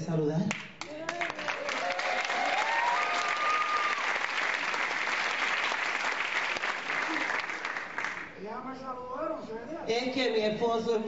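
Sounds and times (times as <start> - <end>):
audience applauding: 0.5 - 8.4
person cheering: 0.9 - 4.2.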